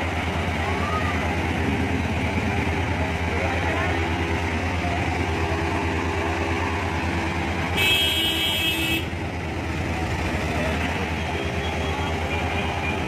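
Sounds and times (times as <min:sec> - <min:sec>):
traffic engines droning: 0:00.0 - 0:13.0
vehicle horn blast: 0:07.8 - 0:09.1.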